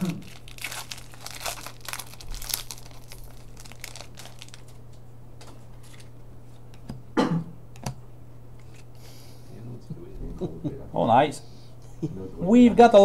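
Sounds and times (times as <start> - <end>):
card pack wrapper crinkling and tearing: 0.0 - 4.9
handling of cards: 0.0 - 6.1.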